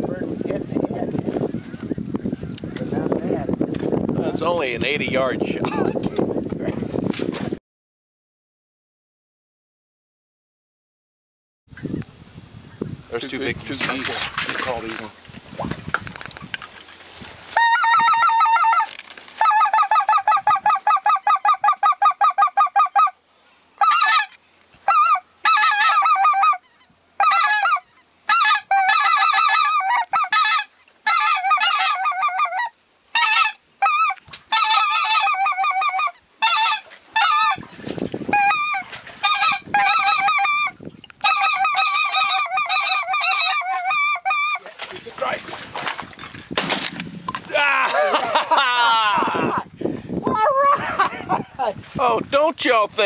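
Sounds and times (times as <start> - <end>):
goose call yelping: 17.6 - 23.2, 23.8 - 37.7, 38.3 - 44.7.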